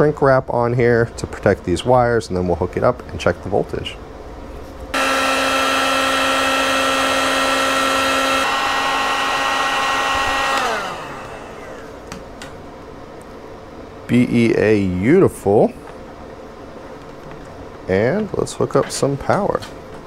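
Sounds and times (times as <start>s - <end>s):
heat gun fan whine: 2.8s - 20.0s
heat gun switch click: 10.4s - 11.0s.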